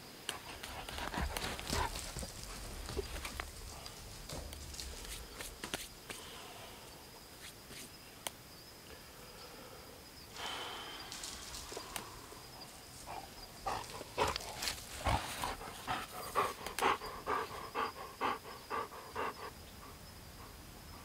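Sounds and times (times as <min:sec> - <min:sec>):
dog panting quickly: 0:00.3 - 0:04.0, 0:13.1 - 0:20.6.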